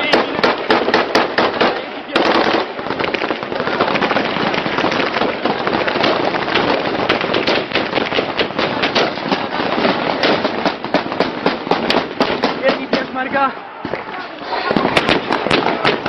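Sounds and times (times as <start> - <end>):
rapid rifle gunfire: 0.0 - 14.0, 14.7 - 16.0.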